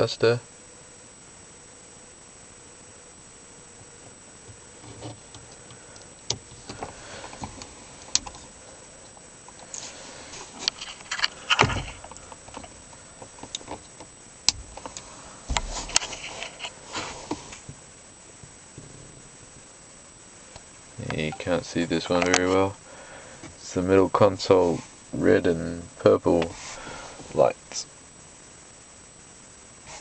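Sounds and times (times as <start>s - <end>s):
clicks and rustling in car: 10.6s - 16.6s
loud thumps: 11.5s - 12.1s.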